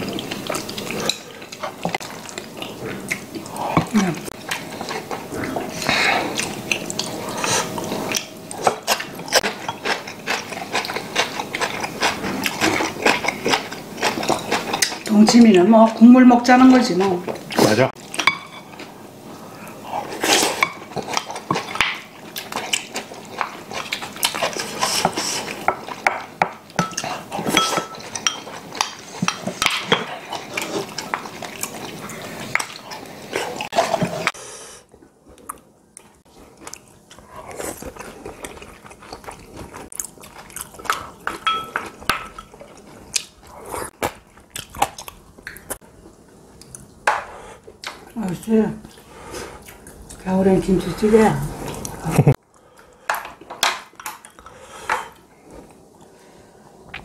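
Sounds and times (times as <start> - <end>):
chewing: 0.0 - 15.1, 19.6 - 34.3, 34.9 - 45.8.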